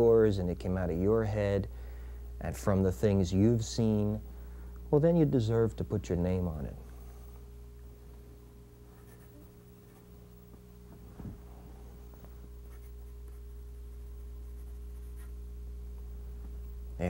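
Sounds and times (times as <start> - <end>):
low electrical hum: 0.0 - 17.0
pencil scratching on paper: 9.0 - 10.0, 12.7 - 13.4, 14.2 - 15.4
soft thump: 10.9 - 11.5.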